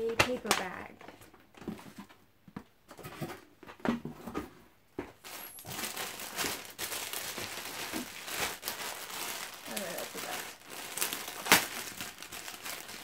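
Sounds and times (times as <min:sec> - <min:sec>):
plastic wrapping crinkling: 0:05.2 - 0:13.0.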